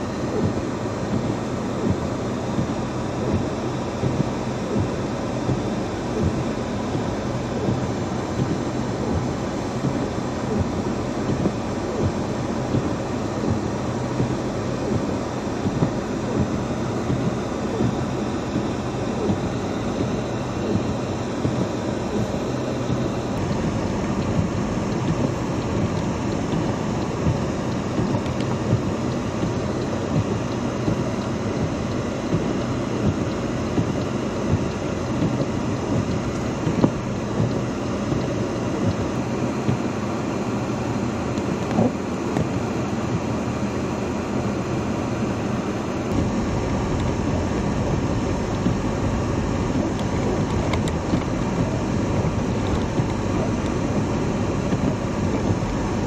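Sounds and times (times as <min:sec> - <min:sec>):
car engine and tyres on slush: 0:00.0 - 0:56.0
low hum: 0:45.7 - 0:56.0.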